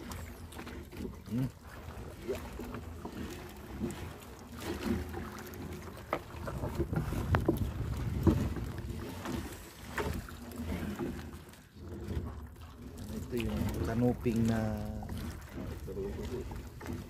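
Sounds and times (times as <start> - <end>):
water against boat hull: 0.0 - 17.0
wind on microphone: 6.4 - 9.2.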